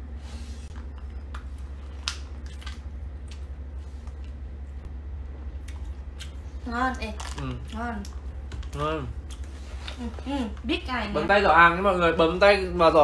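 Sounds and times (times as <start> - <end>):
steady low hum: 0.0 - 13.0
person chewing food: 0.7 - 4.6, 5.4 - 6.6, 7.2 - 10.1.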